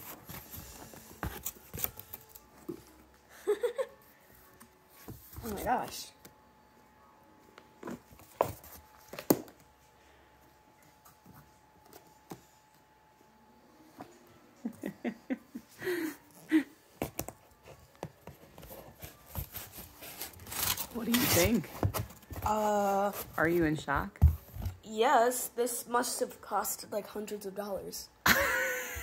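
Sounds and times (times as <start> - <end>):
cardboard packaging handled: 0.0 - 2.9, 17.0 - 23.7
faint steady hum: 0.0 - 20.9.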